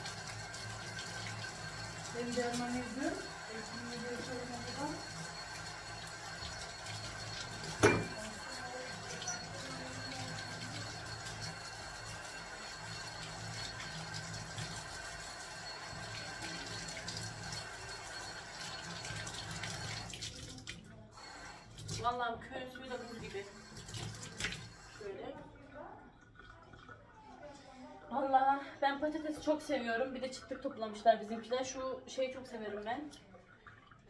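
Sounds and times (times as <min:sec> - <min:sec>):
tap water splashing into sink: 0:07.4 - 0:08.4.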